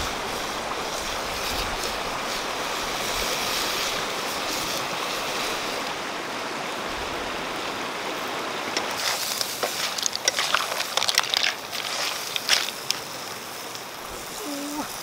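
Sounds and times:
flowing river water: 0.0 - 15.0
shells clattering in metal wok: 8.8 - 13.0.

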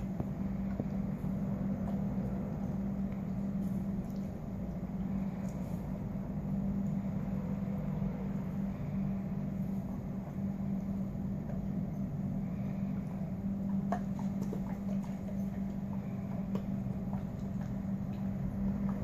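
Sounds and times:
low hum: 0.0 - 19.0
dog gnawing chew treat: 13.2 - 19.0.

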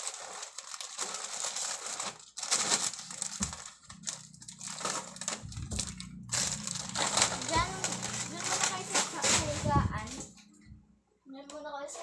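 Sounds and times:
plastic chip bags crinkling: 0.0 - 10.3.

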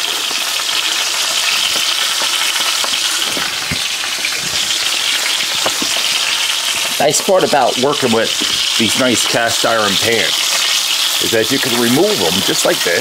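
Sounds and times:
meat sizzling in pan: 0.0 - 13.0
fat popping: 0.3 - 7.0, 8.3 - 8.8.

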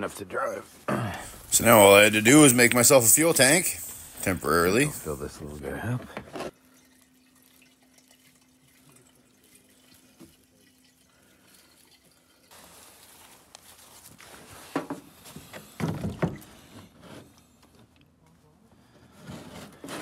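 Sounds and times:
plastic can clunks and knocks: 15.8 - 16.5.

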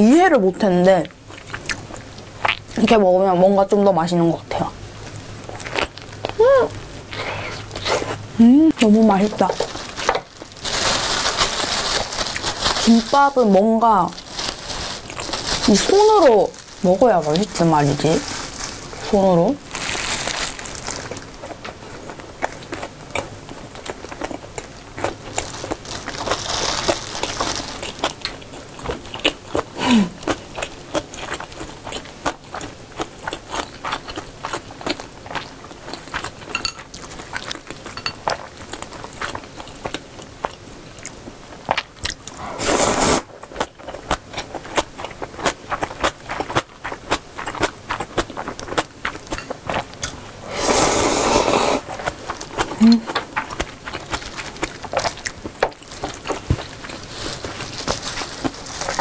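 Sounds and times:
person chewing food: 1.3 - 2.8, 5.0 - 8.2, 19.7 - 59.0
slurping noodles: 42.4 - 43.3, 50.4 - 52.1.

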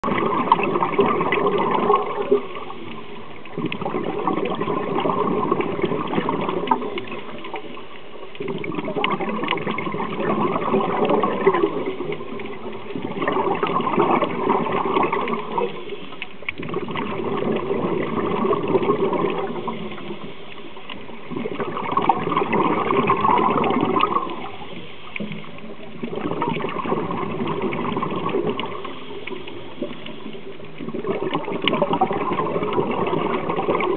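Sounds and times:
exhaled bubbles gurgling: 0.0 - 33.9.

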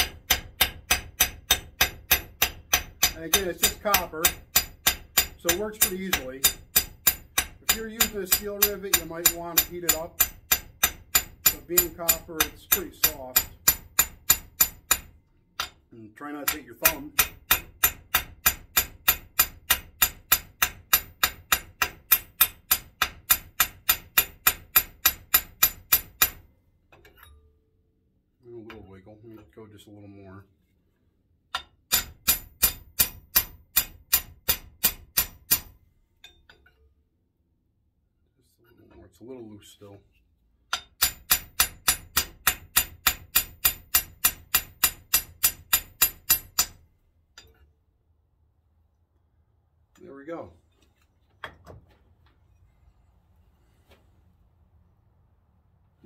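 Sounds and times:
hammer tapping rivet on steel: 0.0 - 15.8, 16.4 - 26.4, 31.5 - 36.5, 40.7 - 46.8.

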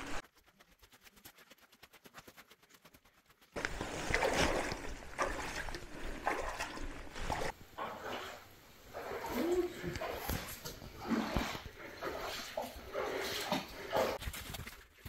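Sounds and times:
running water: 3.6 - 14.2
footsteps splashing in water: 3.6 - 15.0.

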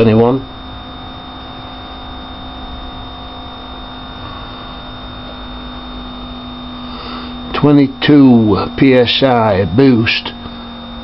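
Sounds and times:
electric fuel pump humming: 0.0 - 11.0
faint high whine: 0.0 - 11.0.

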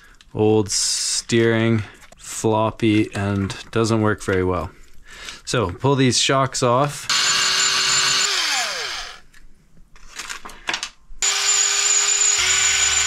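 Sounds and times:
electric screwdriver spinning: 7.1 - 9.2, 11.2 - 13.0.

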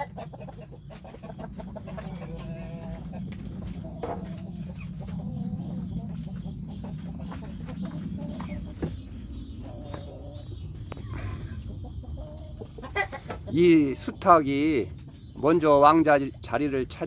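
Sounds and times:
chickens clucking softly: 0.0 - 17.0
low rumble: 2.0 - 12.2.

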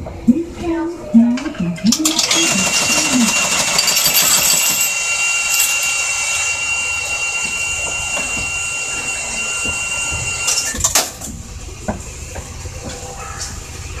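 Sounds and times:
tram equipment running with whine: 0.0 - 14.0.

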